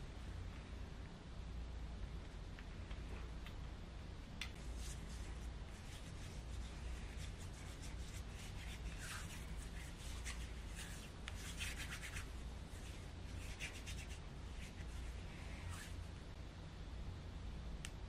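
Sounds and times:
low room hum: 0.0 - 18.0
hands rubbing and rustling: 4.4 - 16.3.

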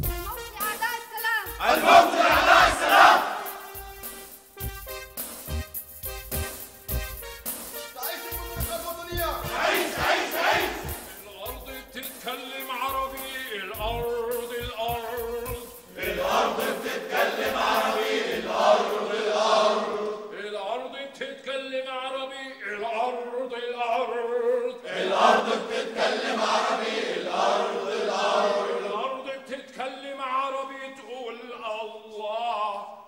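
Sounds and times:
men chanting in unison: 1.6 - 3.7, 8.6 - 12.2, 12.9 - 20.6, 24.6 - 29.5.

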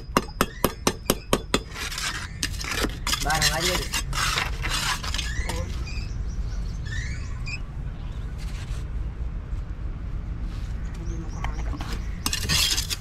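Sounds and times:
trowel scraping wet concrete: 1.6 - 5.8, 12.2 - 13.0.

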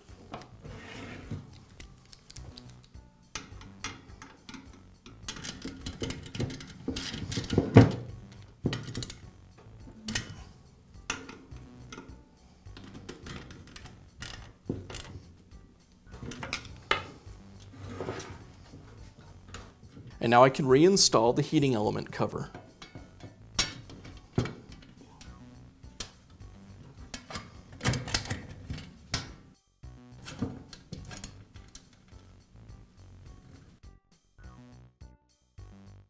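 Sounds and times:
metal tools clicking and scraping: 1.5 - 7.7, 10.1 - 10.5, 22.5 - 25.3.

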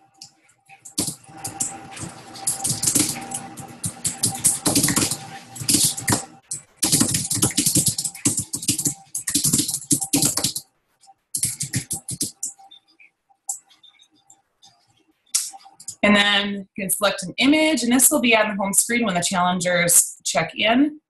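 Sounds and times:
fast typing on keyboard: 0.8 - 10.7, 11.4 - 12.8.

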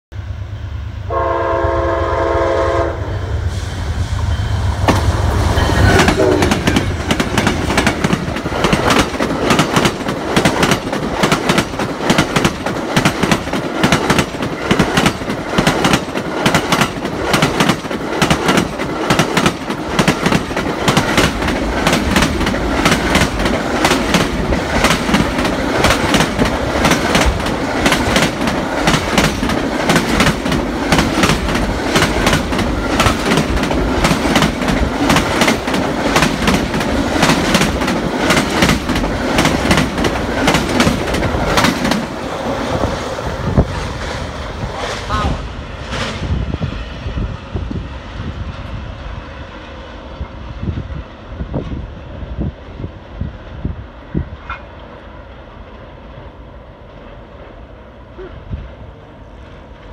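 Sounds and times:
train horn blast: 1.0 - 7.0
train wheels clattering over rail joints: 4.8 - 42.2.

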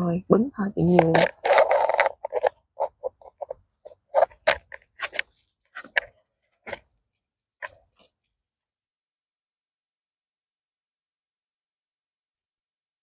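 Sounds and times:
clicks and scrapes in soil: 0.9 - 6.2.

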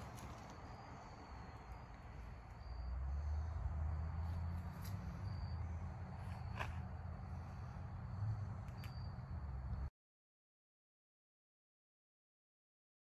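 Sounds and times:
faint high insect chirps: 0.0 - 9.9.

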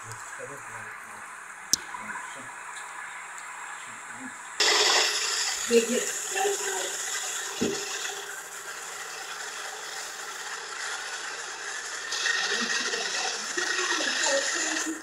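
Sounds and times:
jet engine rushing hiss: 4.6 - 15.0.

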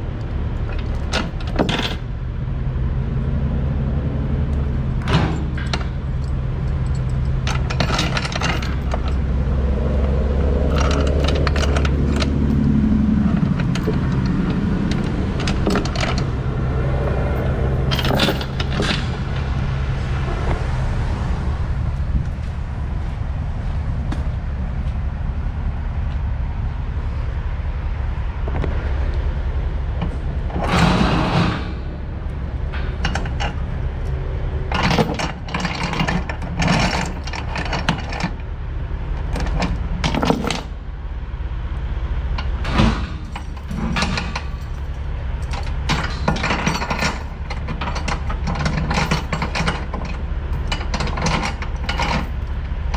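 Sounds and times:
steady low hum: 0.0 - 52.9
steel chains clinking and rattling: 0.5 - 2.1, 4.6 - 19.7, 32.7 - 34.1, 34.7 - 38.5, 39.2 - 40.8, 42.4 - 52.9.

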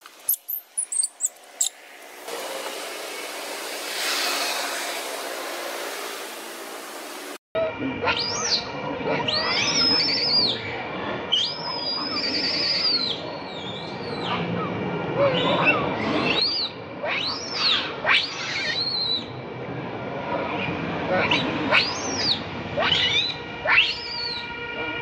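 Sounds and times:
infant monkey squealing: 15.3 - 19.2, 21.3 - 24.4.

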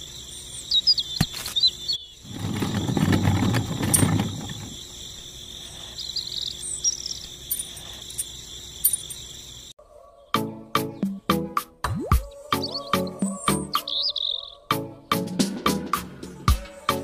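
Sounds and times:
bird chirps: 0.0 - 2.3, 4.7 - 11.3, 12.3 - 14.7
insects buzzing: 0.0 - 9.8, 12.3 - 17.0
low rustling: 2.2 - 5.0.

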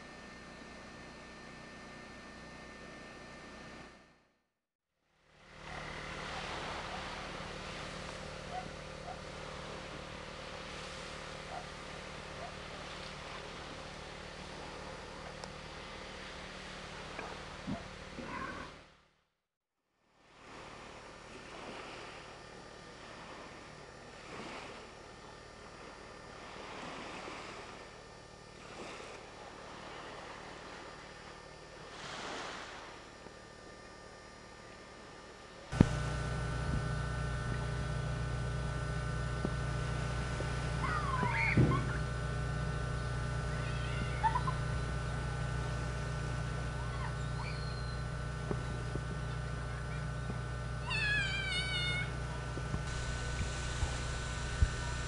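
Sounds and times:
low steady hum: 0.0 - 4.3, 5.1 - 19.0, 20.1 - 55.0
wind: 5.2 - 19.0, 20.0 - 55.0
sea wash: 5.3 - 18.2, 20.2 - 33.8
even hiss: 35.7 - 55.0
faint short chirps: 47.0 - 48.1.

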